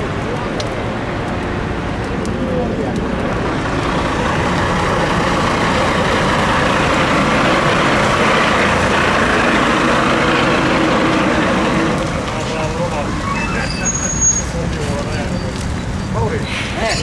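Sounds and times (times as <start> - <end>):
truck engine running: 0.0 - 13.5.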